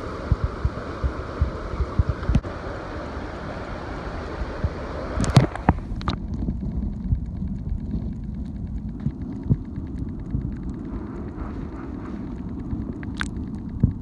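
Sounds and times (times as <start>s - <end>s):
muffled underwater rumble: 0.0s - 14.0s
faint fast ticking: 6.3s - 14.0s.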